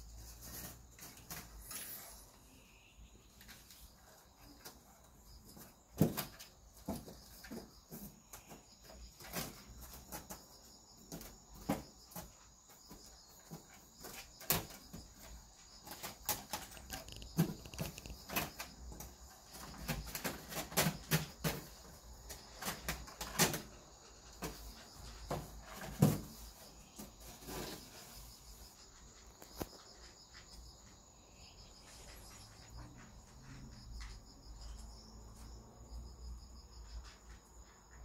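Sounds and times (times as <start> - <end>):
kitten paws tapping on wood: 16.4 - 18.4.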